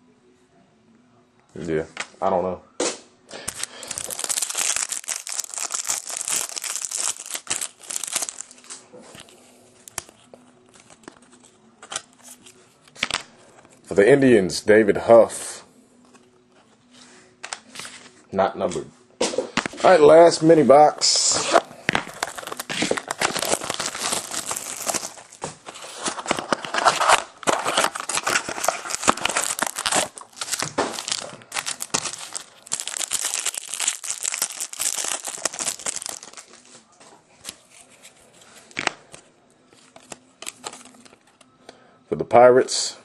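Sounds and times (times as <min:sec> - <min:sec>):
packaging crinkling and tearing: 0:03.4 - 0:08.8, 0:21.0 - 0:36.7, 0:39.8 - 0:41.2.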